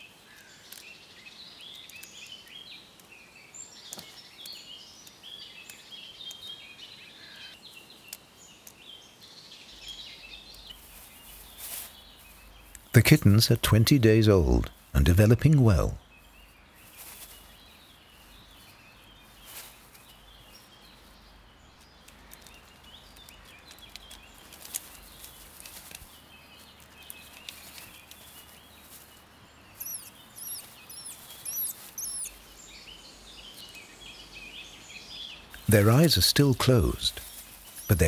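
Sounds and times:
small birds chirping: 0:00.0 - 0:38.0
high quick bird chirps: 0:29.7 - 0:32.4, 0:35.6 - 0:38.0.

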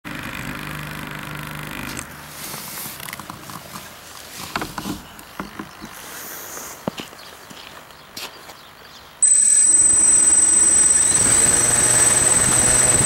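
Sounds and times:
small motor humming: 0:09.2 - 0:13.0.

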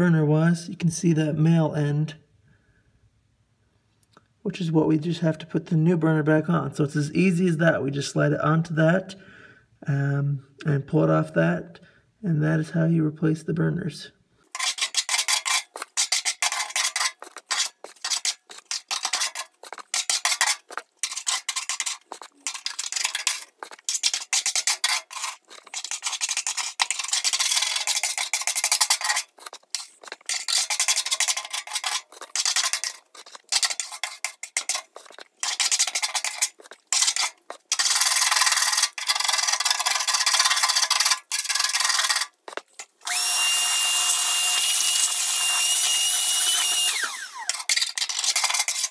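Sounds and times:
wire brush scrubbing metal: 0:14.5 - 0:48.9.

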